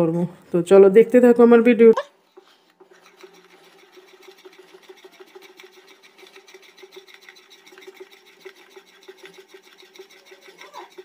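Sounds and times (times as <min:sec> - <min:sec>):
whisk scraping a plate: 0:02.3 - 0:11.0.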